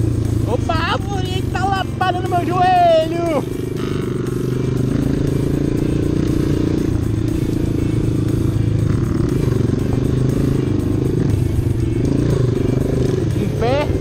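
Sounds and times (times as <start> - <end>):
motorbike engine running: 0.0 - 14.0.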